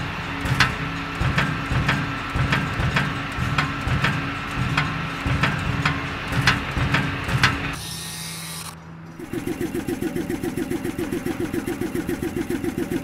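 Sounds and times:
sharp mechanical clicks: 7.3 - 13.0.

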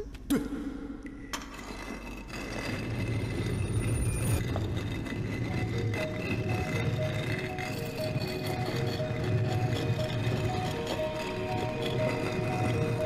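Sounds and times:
sustained music tones: 4.1 - 13.0.

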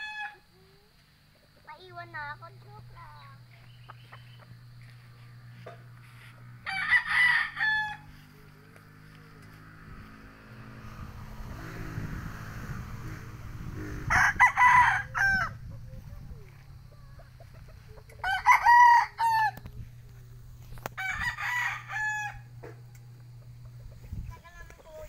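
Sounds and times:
rooster crowing: 0.0 - 0.5, 6.6 - 8.2, 14.0 - 15.7, 18.1 - 19.7, 20.9 - 22.6
steady low hum: 0.4 - 25.0.

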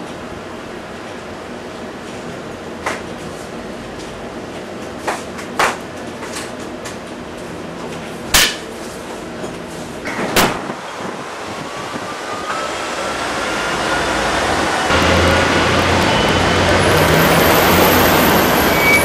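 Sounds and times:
street traffic noise: 10.1 - 19.0.

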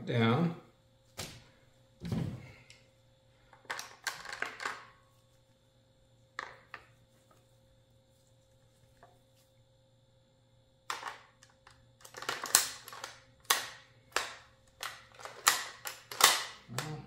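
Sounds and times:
rifle handling clicks and knocks: 10.9 - 16.6.

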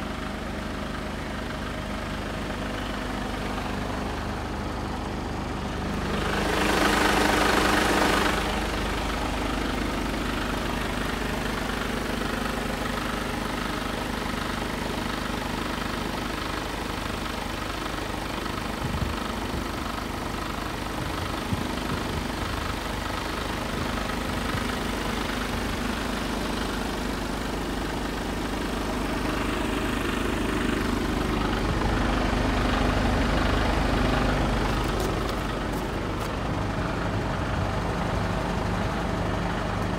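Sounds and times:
diesel truck engine idling: 0.0 - 39.9.

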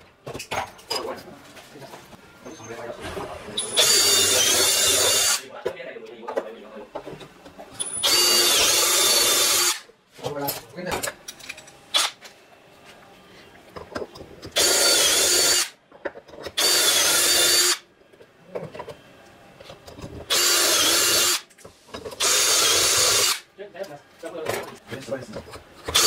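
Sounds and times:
cordless drill boring into wood: 3.7 - 5.4, 7.8 - 9.8, 14.6 - 15.7, 16.6 - 17.8, 20.3 - 21.4, 22.2 - 23.4.

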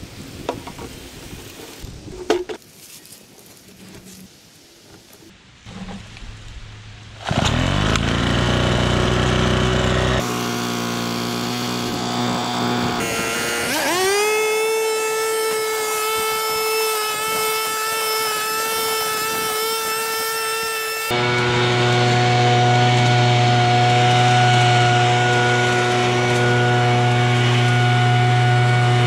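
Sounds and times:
leaf blower engine revving: 7.2 - 29.0.

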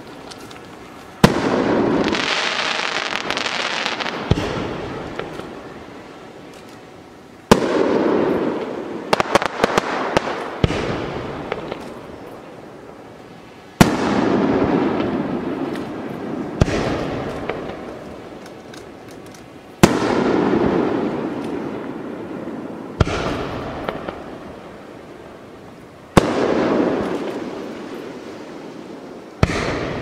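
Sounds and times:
firework crackling: 0.0 - 30.0
softer firework bangs: 1.2 - 5.6, 13.8 - 18.7, 23.0 - 24.4, 29.4 - 30.0
firework booms with rolling echo: 1.2 - 6.0, 7.5 - 12.3, 13.8 - 18.4, 19.8 - 25.4, 26.1 - 30.0.

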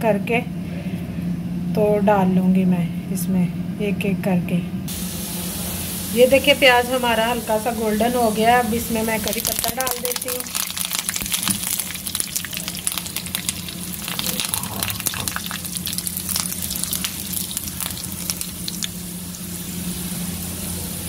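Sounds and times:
leaves and onions sizzling in oil: 4.9 - 21.0.

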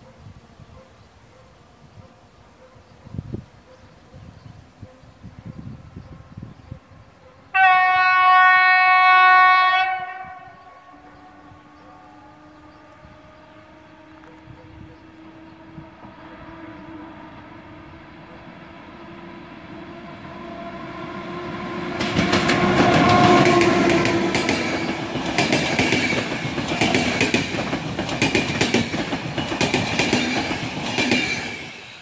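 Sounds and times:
electric locomotive rumble and hum: 10.0 - 32.0
wheels clacking over rail joints: 21.8 - 32.0.

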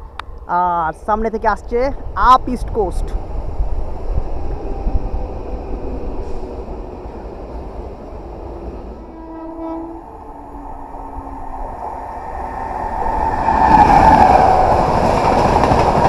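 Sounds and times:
train rumbling: 0.0 - 16.0
train horn: 9.0 - 11.7.

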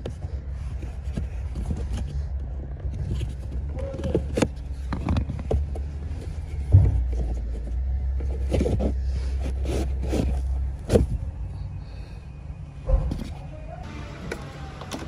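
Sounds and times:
low steady hum: 0.0 - 15.0
air filter rustling: 0.1 - 11.2
plastic housing knocks and scrapes: 6.6 - 9.0.

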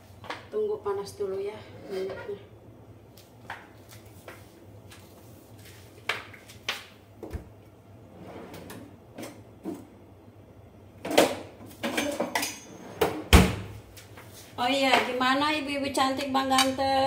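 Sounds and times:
kitchen things clattering: 11.1 - 13.3.

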